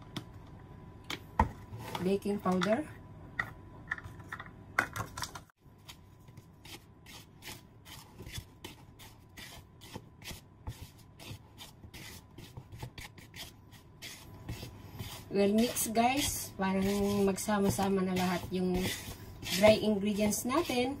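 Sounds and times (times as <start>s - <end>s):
spatula scraping plastic bowl: 6.6s - 21.0s.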